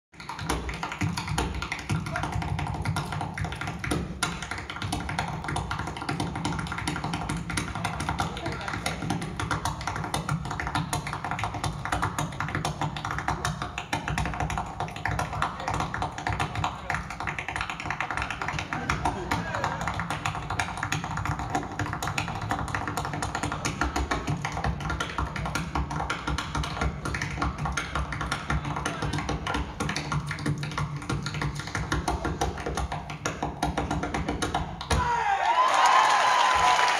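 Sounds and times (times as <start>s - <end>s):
tap shoes on stage floor: 0.2s - 36.9s.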